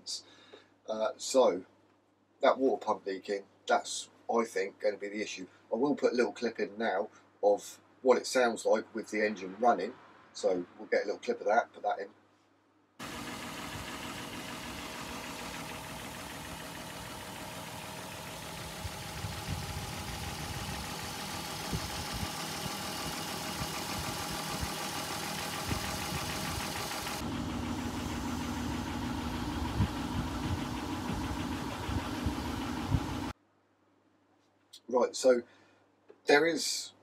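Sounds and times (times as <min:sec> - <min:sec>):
car engine idling with knocking: 0:13.0 - 0:33.3.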